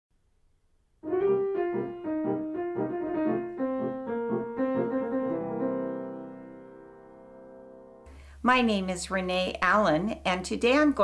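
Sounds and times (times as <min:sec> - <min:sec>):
piano melody: 0:01.0 - 0:08.1.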